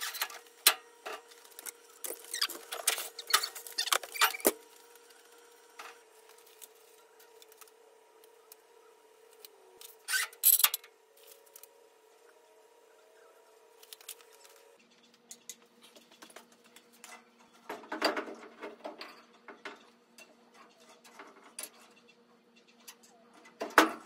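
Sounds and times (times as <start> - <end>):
tools and metal parts clattering: 0.0 - 4.7, 15.2 - 24.0.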